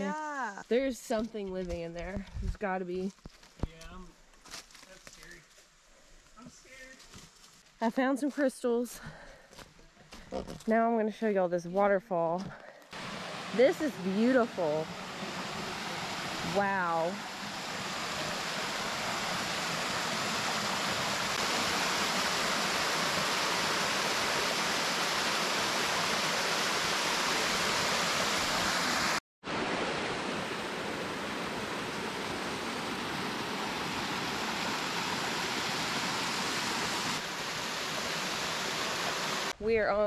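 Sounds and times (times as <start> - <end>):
small waterfall rushing: 12.9 - 39.6.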